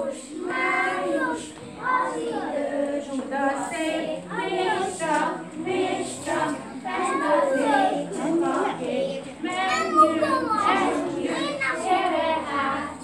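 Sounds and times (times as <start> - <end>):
children singing together: 0.0 - 13.0
women singing: 0.0 - 13.0.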